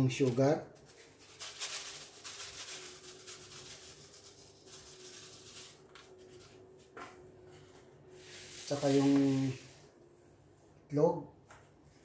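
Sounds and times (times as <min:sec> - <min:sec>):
sugar pouring into flour: 0:00.9 - 0:06.2.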